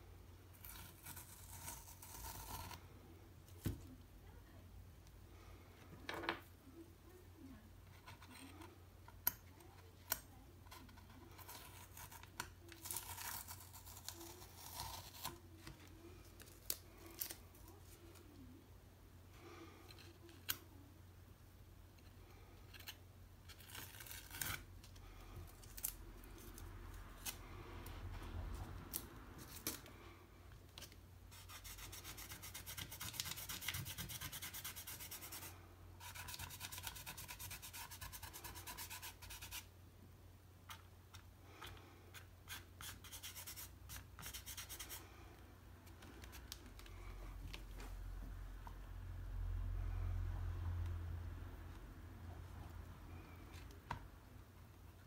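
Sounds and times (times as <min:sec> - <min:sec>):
blade scratching paper: 0:31.3 - 0:39.7.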